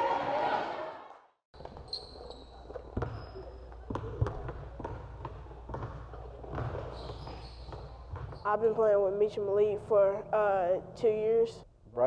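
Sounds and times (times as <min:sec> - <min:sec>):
basketballs bouncing on wood floor: 0:01.6 - 0:09.0.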